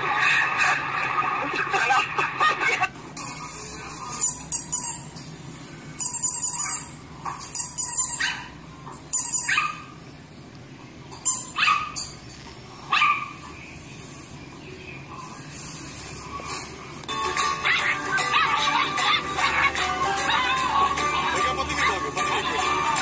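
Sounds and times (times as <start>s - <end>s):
dog barking and yipping: 6.6s - 8.6s, 9.2s - 10.0s, 11.5s - 12.0s, 12.9s - 13.4s, 17.5s - 22.5s.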